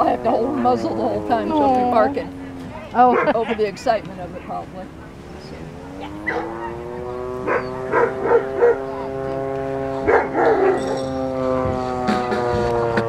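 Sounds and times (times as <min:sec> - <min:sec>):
steady held tone: 0:00.0 - 0:13.0
dog barking: 0:02.8 - 0:03.6, 0:05.9 - 0:06.8, 0:07.5 - 0:08.8, 0:10.0 - 0:10.9.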